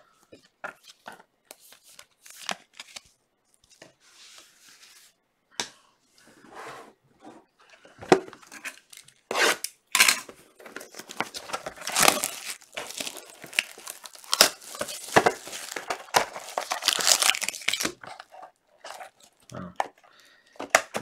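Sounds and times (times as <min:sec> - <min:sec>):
shrink-wrap tearing and crumpling: 0:08.5 - 0:10.1, 0:10.8 - 0:19.6.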